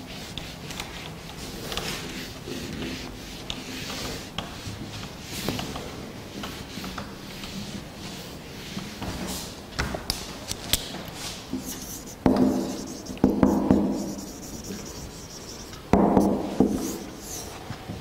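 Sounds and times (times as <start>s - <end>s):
marker knocking on whiteboard: 12.2s - 17.1s.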